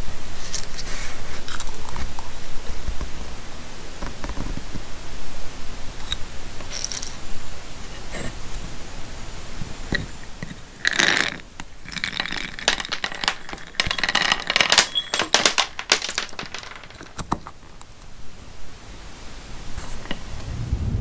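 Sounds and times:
peanuts rattling poured: 6.6s - 7.2s, 10.8s - 17.2s
peanuts clicking on wood: 9.9s - 17.9s.

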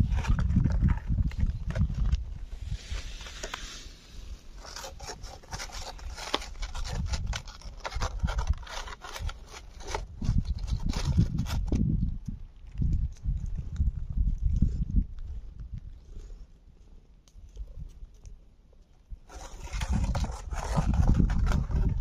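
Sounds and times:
cat chewing food: 9.1s - 19.1s.

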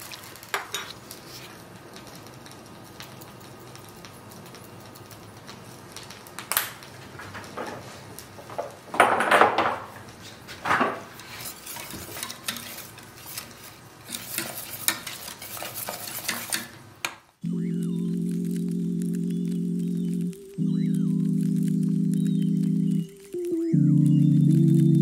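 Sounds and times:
whisk scraping in metal pot: 11.1s - 16.9s.

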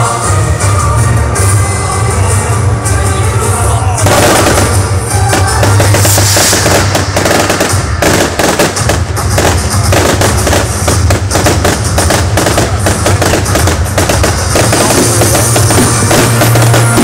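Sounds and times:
fireworks bangs and crackling: 3.2s - 17.0s.

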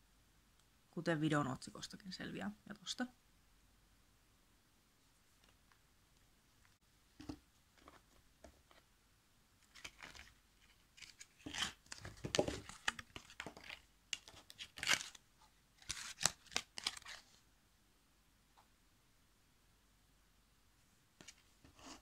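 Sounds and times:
paper and foil tearing and crinkling: 14.2s - 15.2s, 15.8s - 17.3s.

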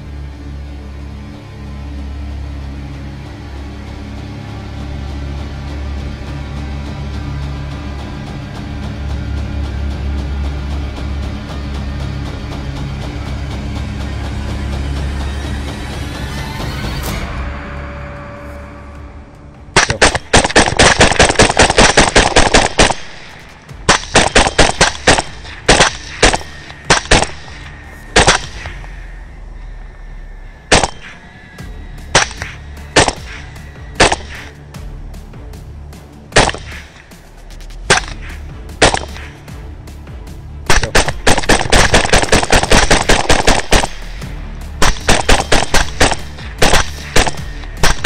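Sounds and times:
rifle shots: 19.8s - 28.8s, 30.7s - 31.2s, 32.1s - 34.5s, 36.4s - 37.0s, 37.9s - 39.4s, 40.7s - 48.0s.

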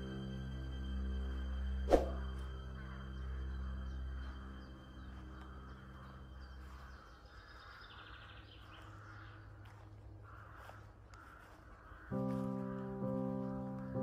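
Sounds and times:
background music chords: 0.0s - 8.7s, 12.1s - 14.0s
faint bird calls and chirps: 2.0s - 14.0s.

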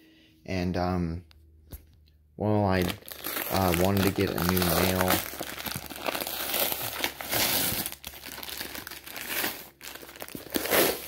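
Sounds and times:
plastic wrap and paper crinkling: 2.7s - 11.0s.

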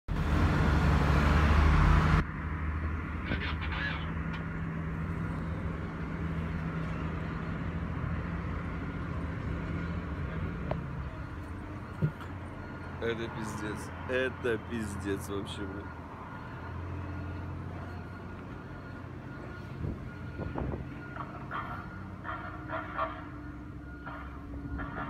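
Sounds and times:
street traffic hum: 0.1s - 25.0s
honk-like call: 3.3s - 4.2s, 21.5s - 23.4s.

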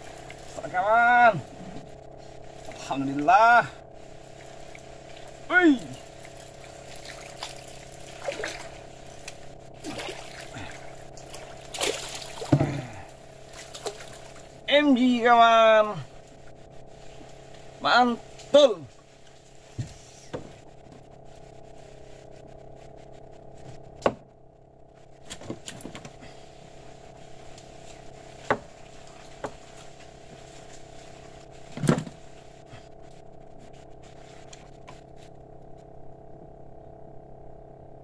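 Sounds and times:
steady low hum: 0.0s - 38.0s
knocks in a boat: 23.6s - 24.3s, 28.4s - 29.7s, 31.7s - 32.2s.

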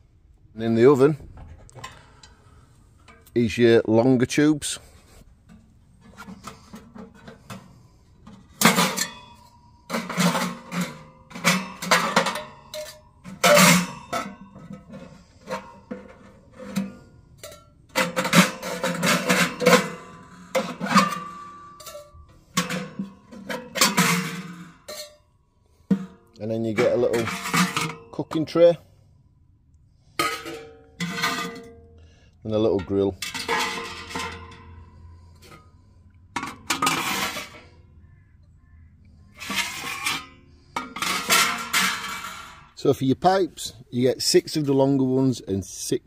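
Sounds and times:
metal tray clanking and scraping: 4.6s - 28.8s, 30.0s - 38.2s, 39.2s - 45.5s
faint metallic ring: 7.7s - 14.8s.

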